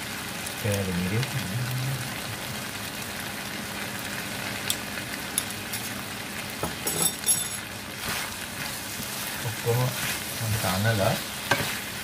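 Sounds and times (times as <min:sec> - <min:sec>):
meat sizzling in a frying pan: 0:00.0 - 0:12.0
metallic clinking: 0:06.8 - 0:07.6.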